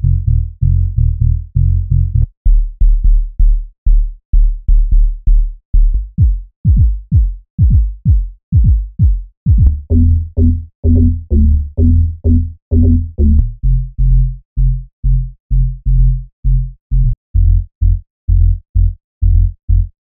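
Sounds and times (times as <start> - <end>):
deep bass hits: 9.5 - 13.6.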